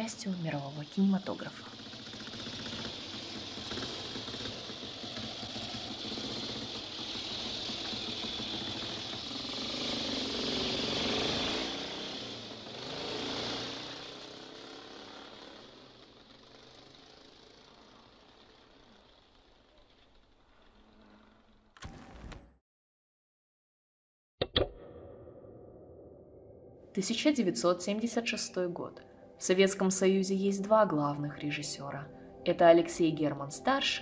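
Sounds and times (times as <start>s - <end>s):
motorcycle engine rumbling: 0.0s - 22.4s.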